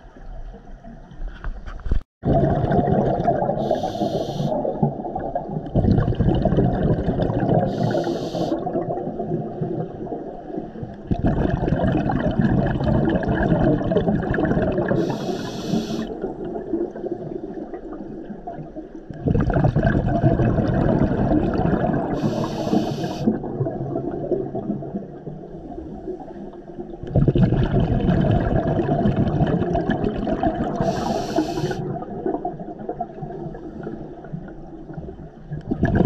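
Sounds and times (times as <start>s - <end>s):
underwater exhaled bubbles rushing: 2.2s - 36.0s
regulator hiss: 3.6s - 4.6s, 7.7s - 8.6s, 15.0s - 16.1s, 22.2s - 23.3s, 30.8s - 31.8s.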